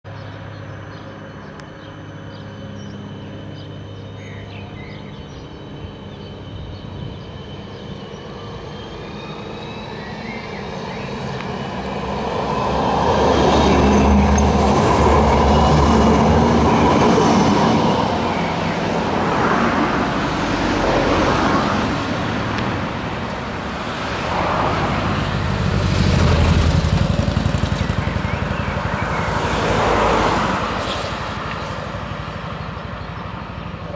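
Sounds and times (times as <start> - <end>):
tram electric whine: 0.1 - 33.9
steel wheels rumbling on rails: 4.8 - 33.9
cars passing: 10.0 - 33.9
motorcycle passing: 12.5 - 33.9.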